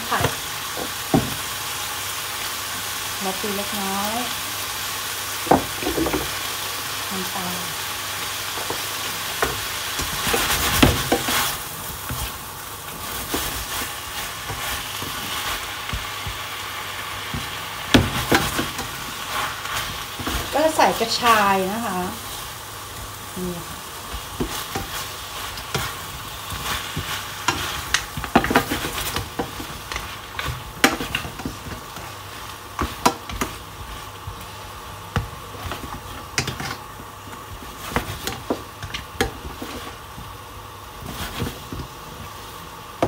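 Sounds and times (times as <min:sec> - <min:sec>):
seafood sizzling in sauce: 0:00.0 - 0:43.0.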